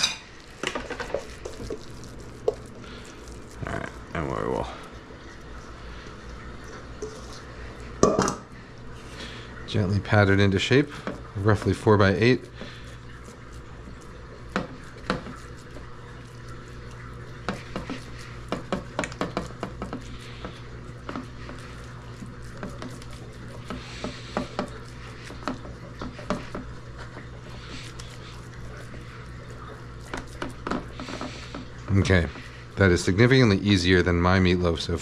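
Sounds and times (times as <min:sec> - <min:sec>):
hands patting meat mixture: 0:00.5 - 0:03.6, 0:10.9 - 0:32.6.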